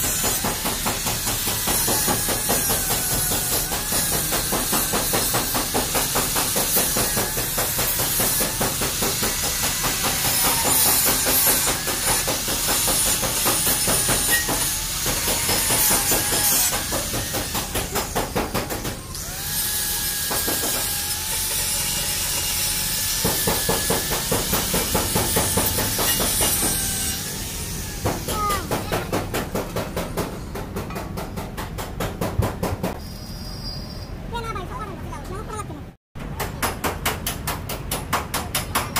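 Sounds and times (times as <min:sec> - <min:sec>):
angle grinder grinding metal: 0:00.0 - 0:29.2.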